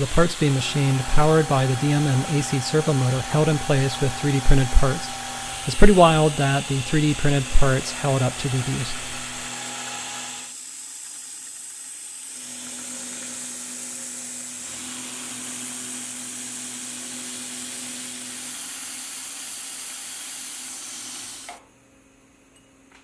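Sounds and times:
spindle drive low hum: 0:00.0 - 0:09.5.

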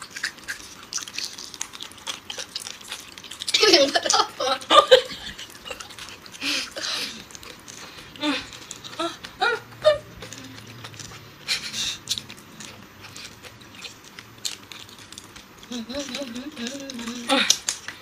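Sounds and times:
breathy hissing laughs: 0:03.5 - 0:07.3, 0:11.4 - 0:12.0
woman giggling: 0:03.6 - 0:07.2, 0:08.2 - 0:10.2.

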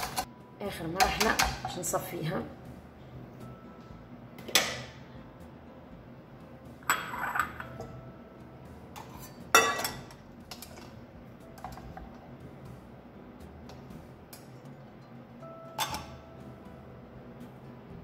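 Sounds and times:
metal pan clanking: 0:09.0 - 0:10.8, 0:15.8 - 0:16.2.

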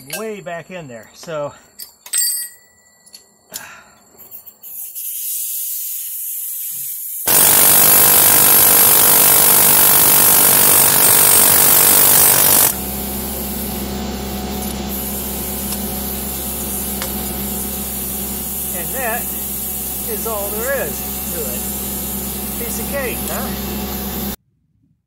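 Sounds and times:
steady air hiss: 0:04.6 - 0:07.8
pneumatic air hammer: 0:04.6 - 0:13.8, 0:14.5 - 0:24.4.

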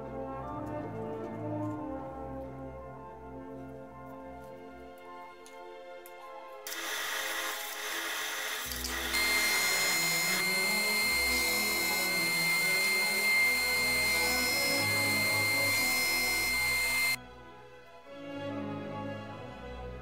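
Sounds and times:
background music: 0:00.0 - 0:06.6, 0:17.2 - 0:20.0
band saw cutting wood: 0:06.7 - 0:17.2
disc sander whining: 0:06.7 - 0:17.2.

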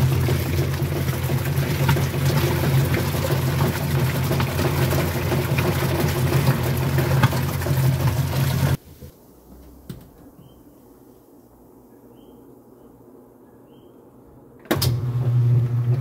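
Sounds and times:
washing machine water churning: 0:00.0 - 0:08.8, 0:14.8 - 0:16.0.

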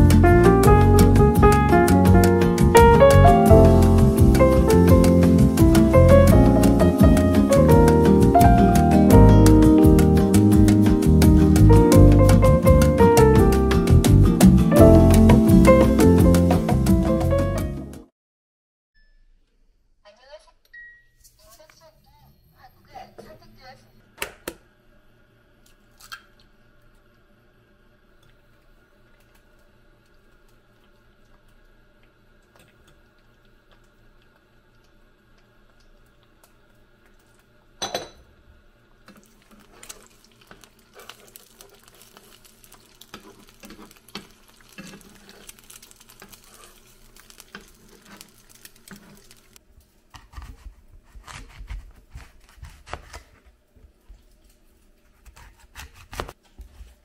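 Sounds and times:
eggs sizzling and popping: 0:01.0 - 0:17.0, 0:28.0 - 0:50.5
knife cutting on cutting board: 0:50.2 - 0:53.5, 0:55.1 - 0:56.8.

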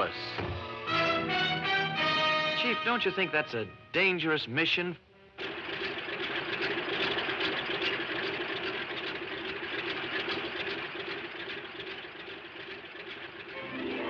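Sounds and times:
propeller airplane engine running: 0:05.1 - 0:14.0.

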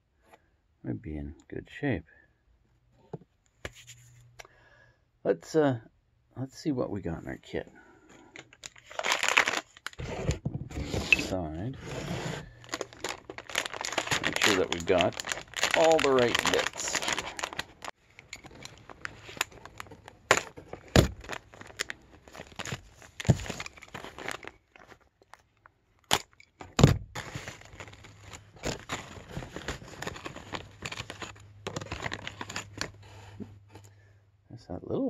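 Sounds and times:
packaging crinkling and rustling: 0:08.4 - 0:11.1, 0:11.8 - 0:33.8.

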